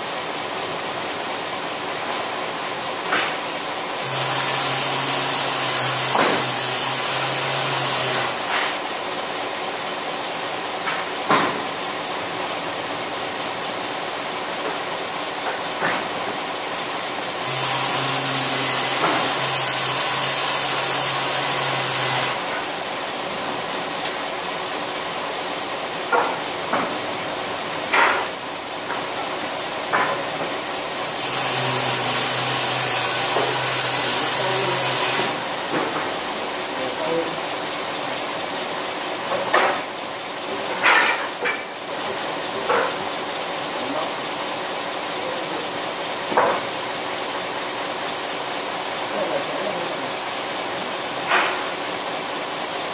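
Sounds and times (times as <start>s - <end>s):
wood-processing machine running: 0.0s - 52.9s
hissing grind of wood cutting: 17.4s - 22.6s, 31.2s - 35.4s.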